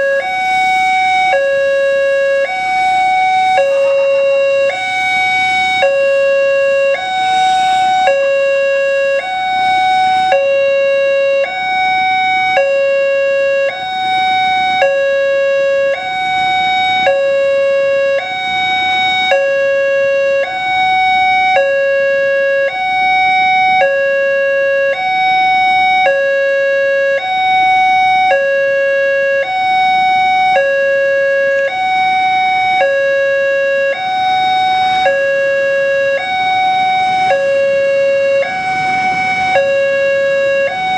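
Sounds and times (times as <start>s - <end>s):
two-tone level crossing alarm: 0.0s - 40.9s.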